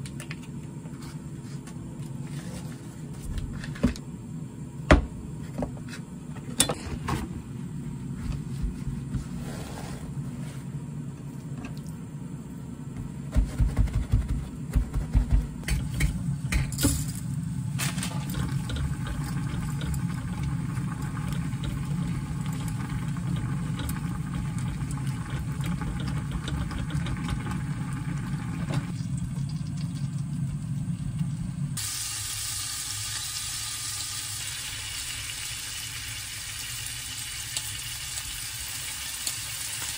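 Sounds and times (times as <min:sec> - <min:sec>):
butter sizzling in a hot pot: 0:31.8 - 0:39.9.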